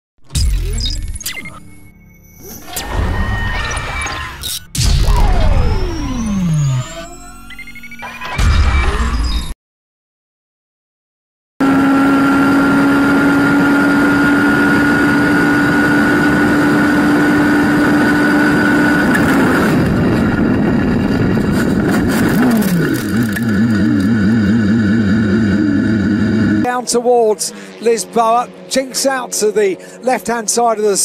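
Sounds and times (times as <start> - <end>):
racing car engine at high revs: 11.6 - 31.0
crash knocks and clatter: 21.3 - 23.6.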